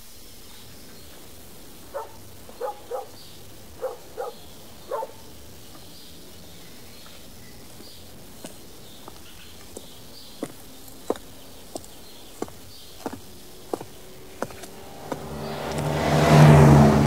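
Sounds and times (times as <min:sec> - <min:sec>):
faint high chirping: 0:00.4 - 0:14.9
footsteps walking: 0:07.8 - 0:15.8.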